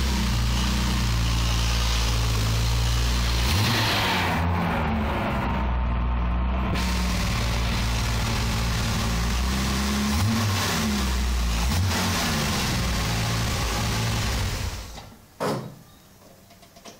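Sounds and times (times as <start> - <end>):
car engine revving: 0.0 - 15.0.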